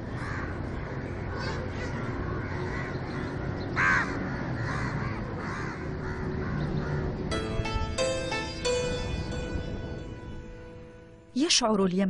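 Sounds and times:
crow cawing: 0:00.0 - 0:07.3.

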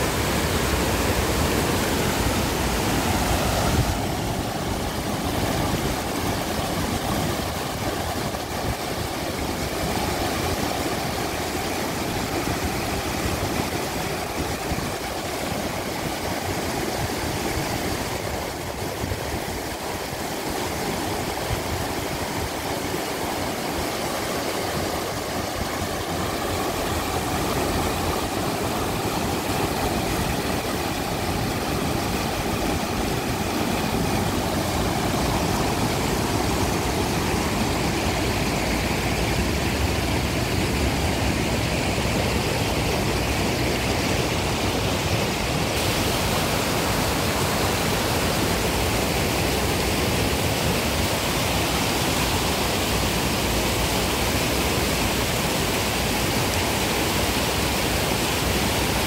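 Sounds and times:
water rushing over rocks: 0:00.0 - 0:59.0.

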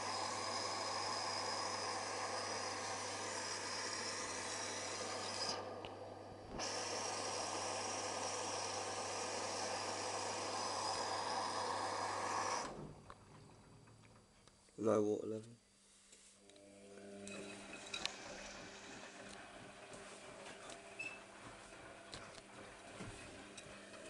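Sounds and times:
washing machine filling with water: 0:00.0 - 0:12.9, 0:17.6 - 0:24.0.

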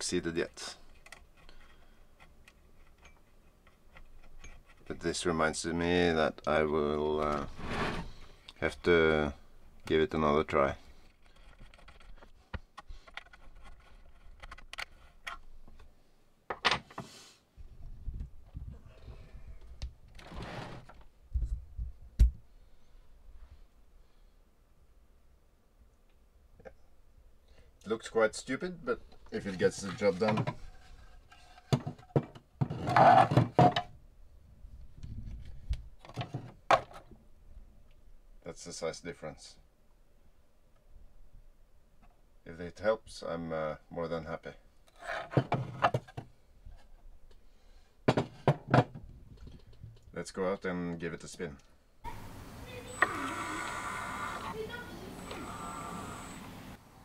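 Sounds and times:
plastic scraping rub: 0:07.3 - 0:08.3, 0:29.4 - 0:33.6.

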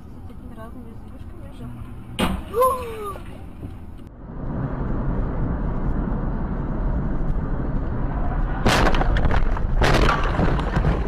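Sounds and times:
car road and engine rumble: 0:00.0 - 0:11.0
car crash: 0:07.5 - 0:11.0.

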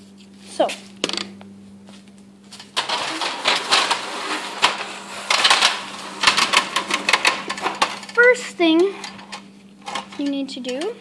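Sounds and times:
metal stepladder clanking: 0:02.7 - 0:08.2.

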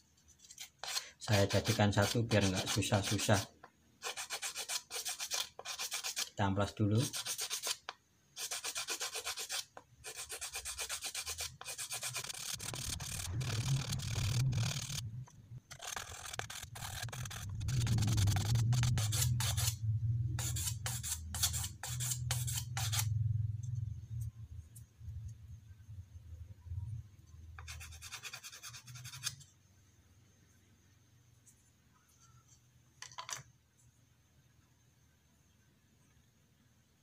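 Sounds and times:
sandpaper scratching strokes: 0:00.4 - 0:06.4, 0:07.0 - 0:07.8, 0:08.4 - 0:15.0, 0:15.7 - 0:19.8, 0:20.4 - 0:23.1.

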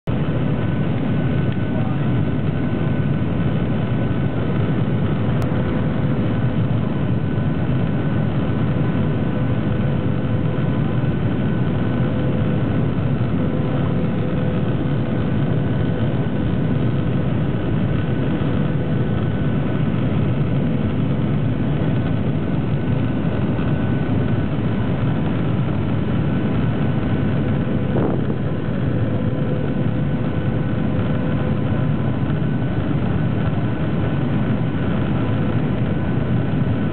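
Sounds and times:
airflow rush in cabin: 0:00.0 - 0:36.9
jet engines running: 0:00.1 - 0:36.9
steady humming tones: 0:00.1 - 0:36.9.

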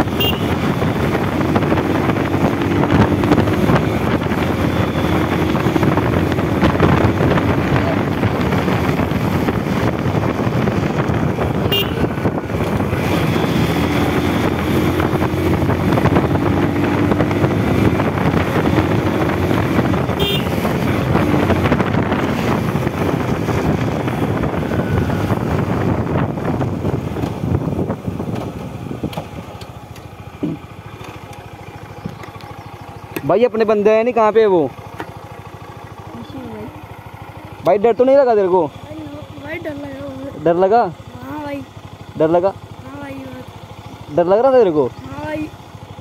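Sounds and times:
wind rush on microphone: 0:00.0 - 0:29.5
motorcycle engine running: 0:00.0 - 0:46.0.

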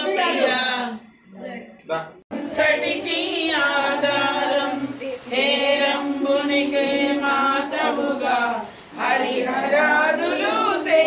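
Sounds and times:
person singing devotional song: 0:02.3 - 0:11.0.

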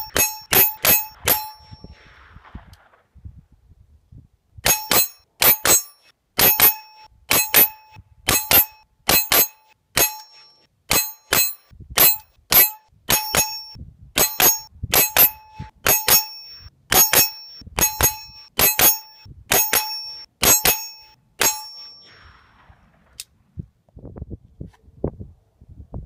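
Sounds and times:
bullets clanging on steel target: 0:00.0 - 0:01.9, 0:04.6 - 0:22.2.

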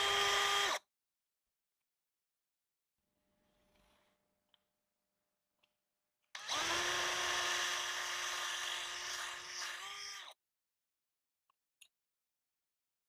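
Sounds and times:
cordless drill boring into metal: 0:00.0 - 0:00.8, 0:06.4 - 0:10.4.

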